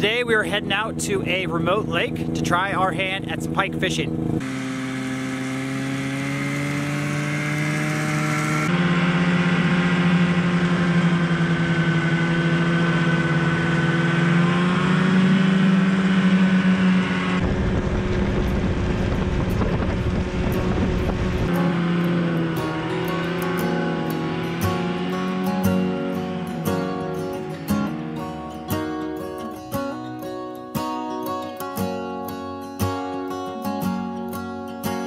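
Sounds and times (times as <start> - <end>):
snowmobile engine running: 0.0 - 29.7
rough rushing noise: 16.9 - 28.8.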